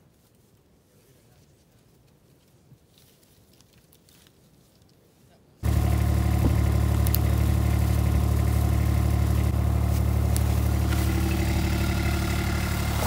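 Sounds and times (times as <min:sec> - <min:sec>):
utility vehicle engine running: 0:05.6 - 0:13.0.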